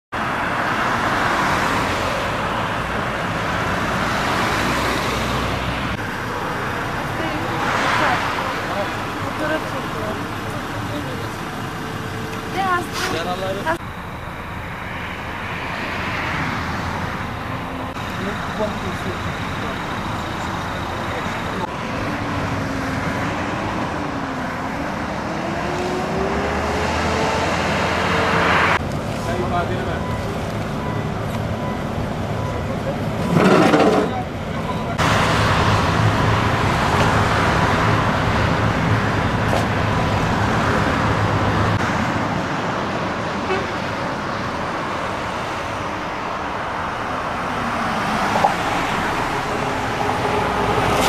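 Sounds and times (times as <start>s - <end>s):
highway traffic passing: 0.1s - 51.0s
engine hum rising in pitch: 0.5s - 28.9s.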